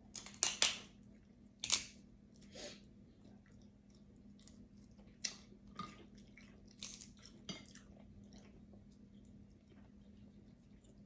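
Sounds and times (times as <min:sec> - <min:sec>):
quiet chewing: 0:02.3 - 0:11.0.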